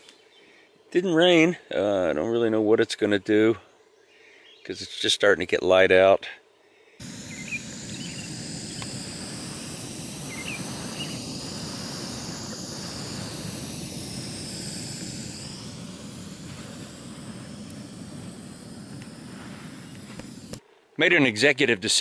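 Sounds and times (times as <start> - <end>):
distant airplane droning: 6.6 - 21.0
bird chirps: 7.1 - 9.0, 10.2 - 11.3.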